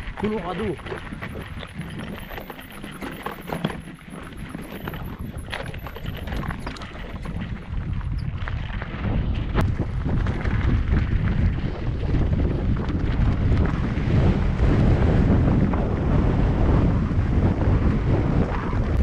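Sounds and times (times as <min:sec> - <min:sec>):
bike clicks and rattles: 0:00.0 - 0:15.3
wind buffeting microphone: 0:00.0 - 0:19.0.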